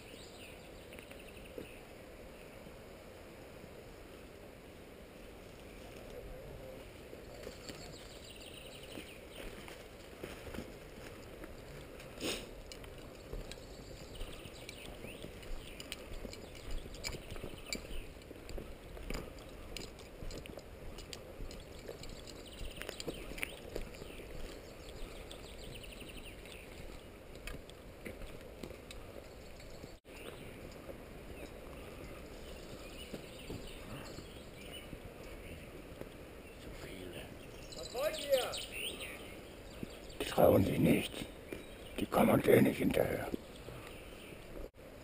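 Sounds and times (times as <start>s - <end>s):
birds singing: 0.0s - 2.6s, 5.6s - 9.7s, 13.0s - 20.1s, 21.0s - 27.2s, 28.9s - 44.7s
footsteps through undergrowth: 7.2s - 36.1s
footsteps on gravel: 8.8s - 29.3s.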